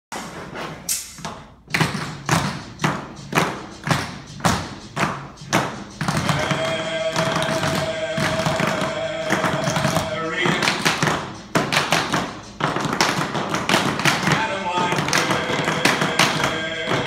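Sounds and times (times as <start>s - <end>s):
music: 0.2s - 17.0s.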